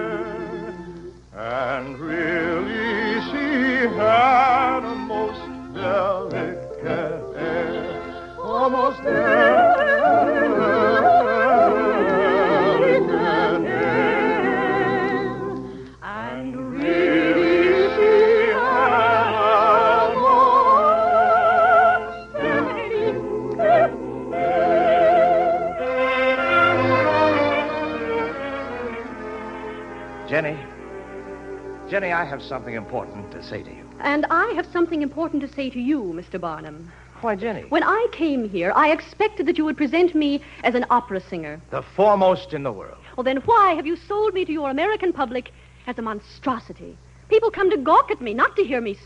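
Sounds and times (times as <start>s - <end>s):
soprano singing opera: 0.0s - 29.5s
orchestra playing: 21.4s - 34.1s.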